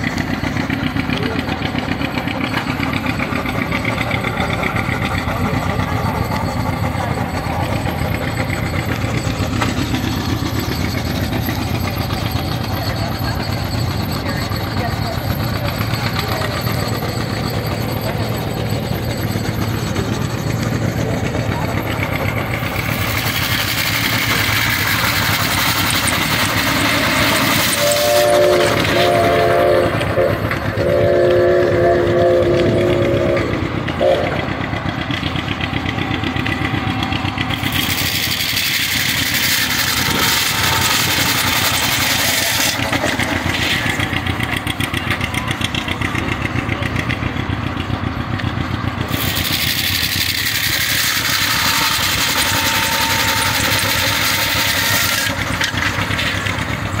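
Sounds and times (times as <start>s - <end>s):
steam-powered saw running: 0.0s - 57.0s
steam whistle chord: 27.7s - 34.5s, 51.3s - 55.4s
saw cutting wood with hiss: 49.1s - 56.0s.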